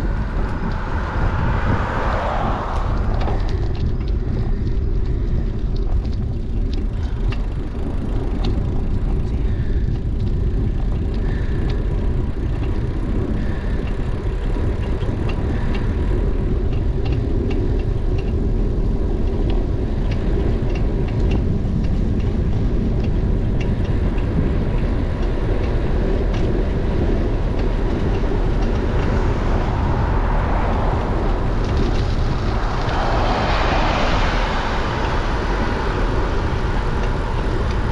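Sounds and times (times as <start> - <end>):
motor vehicle overtaking: 0.0 - 9.0, 24.9 - 37.9
bicycle tyres rolling on asphalt: 0.0 - 37.9
wind rush on microphone: 0.0 - 37.9
light ticks: 2.7 - 35.6.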